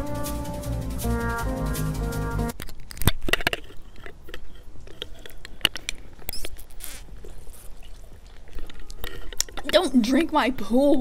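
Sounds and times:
mouth clicks and sucking: 3.1 - 9.8
airy slurp through straw: 6.6 - 9.3.

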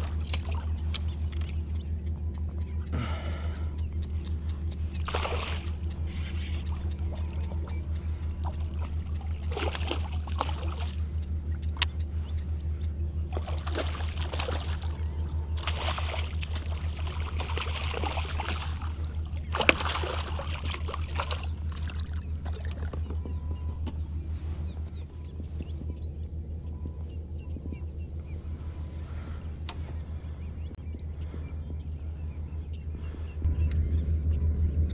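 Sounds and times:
steady low pulsing hum: 0.0 - 34.9
fish splashing at water surface: 4.9 - 7.4, 8.2 - 11.0, 13.3 - 23.0
sharp clicks: 11.2 - 12.5.

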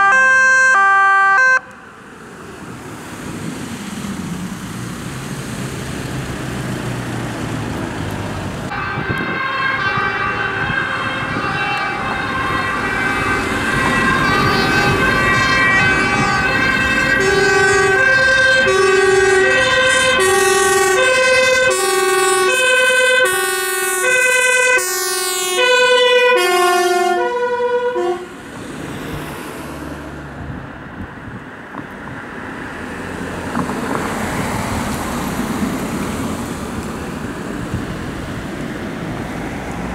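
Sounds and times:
two-tone emergency siren: 0.0 - 1.8, 8.7 - 28.3
passing traffic: 0.0 - 39.9.

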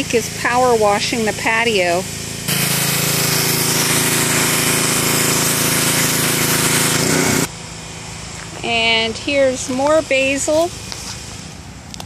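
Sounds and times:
pressure washer water jet hissing: 0.0 - 7.5, 8.7 - 11.6
pump humming: 0.0 - 8.1.

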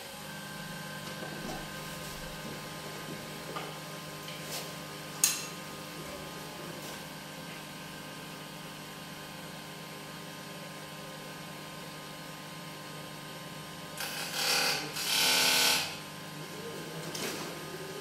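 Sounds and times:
wood lathe motor hum: 14.0 - 16.0.

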